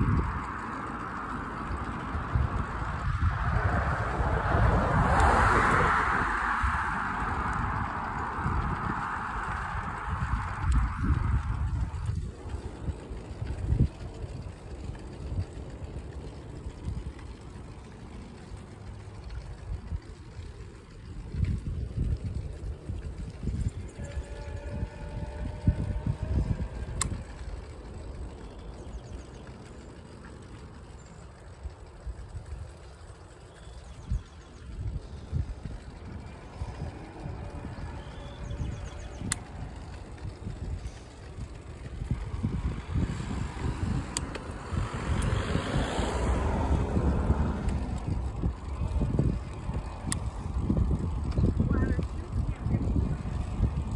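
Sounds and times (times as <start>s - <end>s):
road noise: 0.0s - 53.9s
wind buffeting the microphone: 0.0s - 53.9s
faint clicks: 23.6s - 46.6s, 47.4s - 52.2s.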